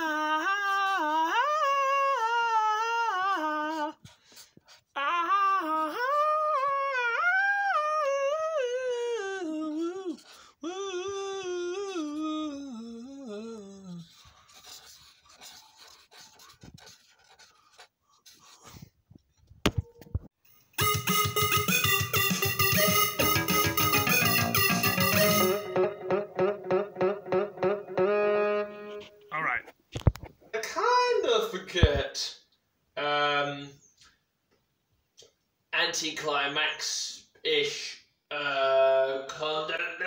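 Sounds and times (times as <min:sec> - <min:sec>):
person humming a tune: 0:00.0 - 0:04.1, 0:05.0 - 0:14.2, 0:20.8 - 0:29.2.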